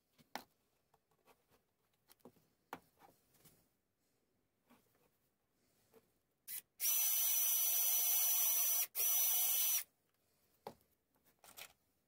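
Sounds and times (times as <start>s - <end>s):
cordless drill whining into wood: 6.5s - 9.9s.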